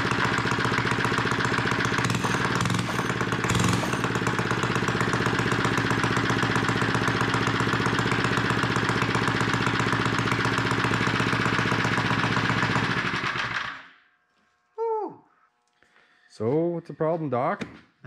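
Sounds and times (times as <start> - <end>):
chain and track running: 0.0 - 13.8
small engine running without exhaust: 0.0 - 14.0.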